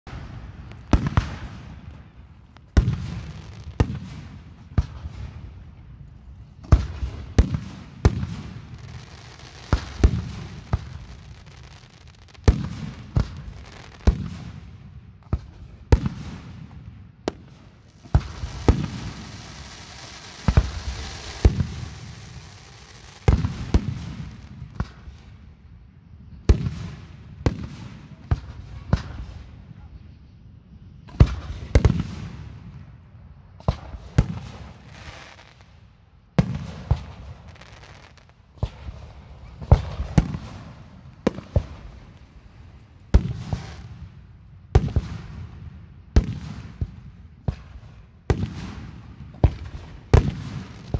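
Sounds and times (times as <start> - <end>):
firework shells booming: 0.1 - 5.5, 17.3 - 25.1, 38.6 - 44.0
firework crackling: 0.1 - 5.6, 6.6 - 14.7, 17.3 - 25.4, 33.6 - 44.1.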